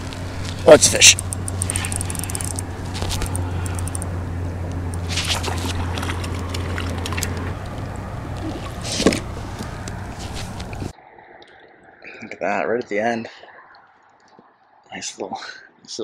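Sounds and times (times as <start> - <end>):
steady low hum: 0.0 - 10.9
fish splashing at water surface: 5.0 - 9.6.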